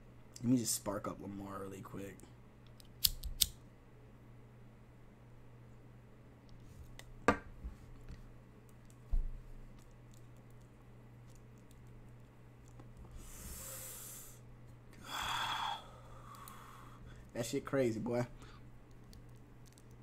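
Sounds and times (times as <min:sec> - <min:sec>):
steady electrical hum: 0:00.0 - 0:20.0
sharp click: 0:02.7 - 0:03.6.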